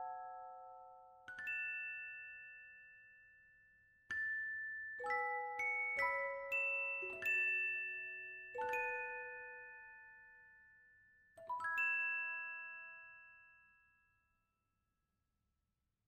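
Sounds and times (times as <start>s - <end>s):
bell-like chimes: 0.0s - 14.2s.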